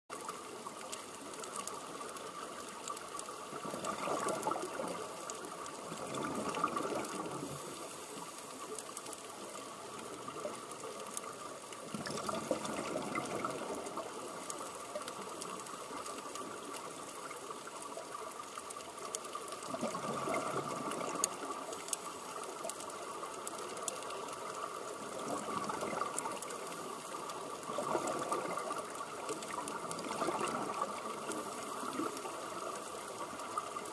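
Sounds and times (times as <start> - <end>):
exhaled air bubbling underwater: 0.1 - 33.9
steady hiss: 7.2 - 11.8, 21.0 - 29.8.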